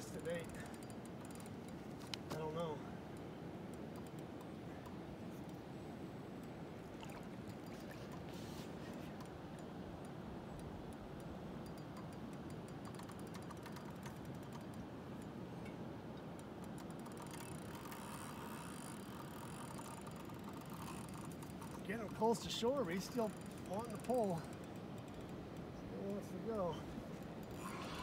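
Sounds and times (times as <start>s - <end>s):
fishing reel clicking: 0.0s - 2.2s, 3.1s - 5.6s, 9.2s - 15.3s, 16.4s - 25.7s, 27.2s - 28.0s.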